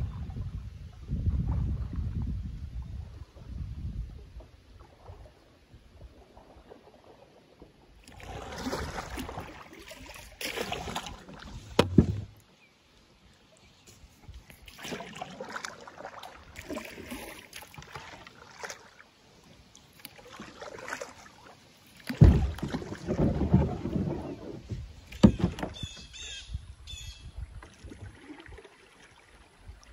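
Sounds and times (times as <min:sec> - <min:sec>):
water splashing around hull: 0:00.0 - 0:26.4, 0:27.3 - 0:29.9
sharp knock on kayak: 0:11.7 - 0:12.3.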